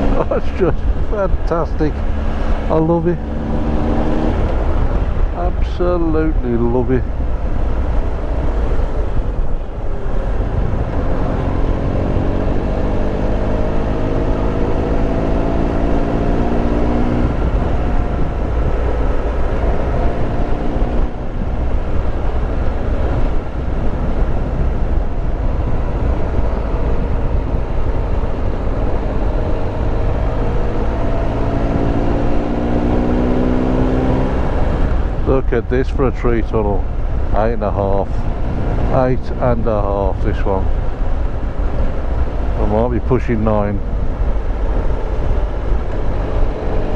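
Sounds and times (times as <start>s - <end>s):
motorcycle engine accelerating: 0.0s - 5.2s, 7.7s - 35.4s
wind and road noise: 0.0s - 46.9s.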